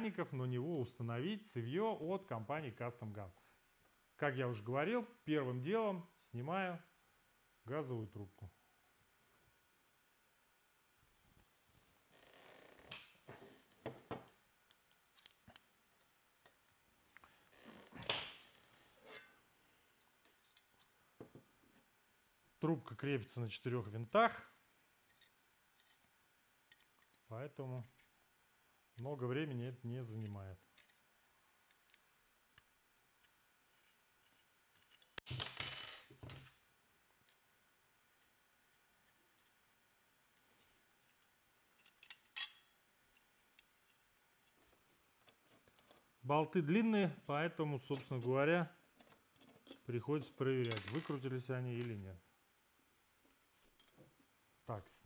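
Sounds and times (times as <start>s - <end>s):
metallic clinking of screws: 34.7s - 36.1s, 41.0s - 43.3s, 49.0s - 51.2s, 53.2s - 54.2s.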